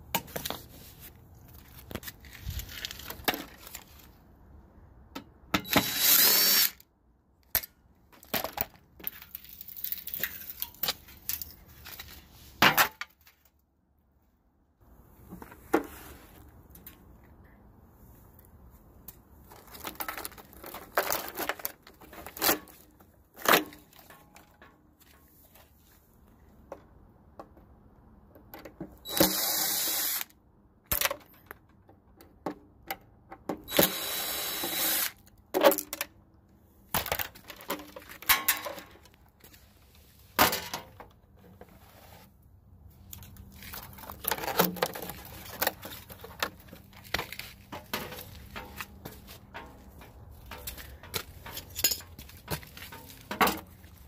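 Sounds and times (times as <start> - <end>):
tool clicks and metallic knocks: 30.9 - 34.0, 43.8 - 53.9.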